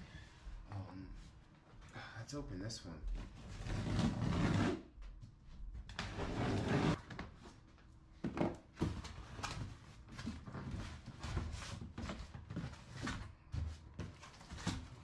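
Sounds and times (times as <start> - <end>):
cardboard box scraping: 6.1 - 7.0.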